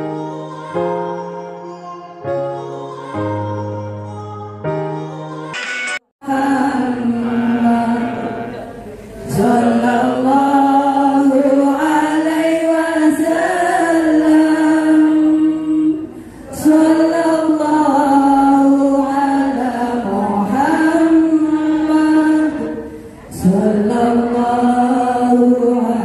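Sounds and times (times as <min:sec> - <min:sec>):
devotional chanting: 0:06.2 - 0:26.0.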